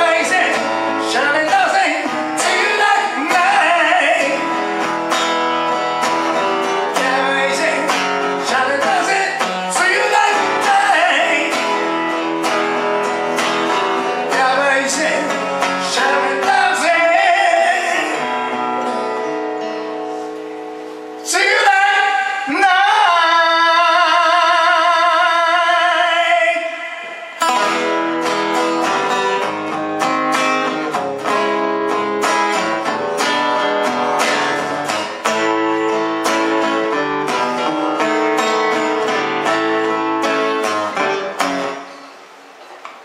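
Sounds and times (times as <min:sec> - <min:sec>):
man singing: 0:00.0 - 0:04.9, 0:06.6 - 0:18.7, 0:21.2 - 0:28.0
strummed acoustic guitar: 0:00.0 - 0:23.6, 0:26.3 - 0:42.6.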